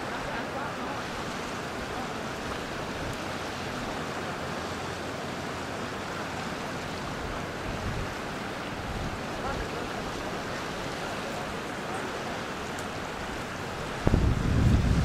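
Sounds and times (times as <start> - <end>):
river water rushing over dam: 0.0 - 15.0.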